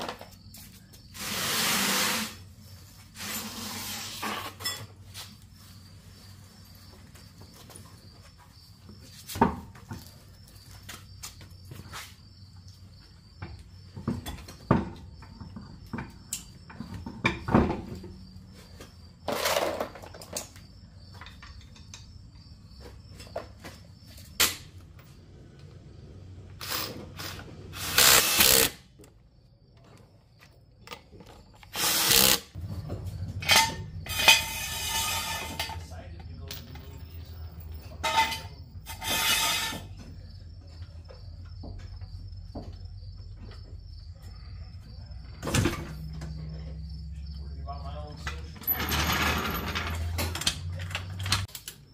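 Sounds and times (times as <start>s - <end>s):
impact wrench bursts: 26.6s - 28.8s, 31.6s - 32.6s
tools clinking: 33.4s - 39.2s.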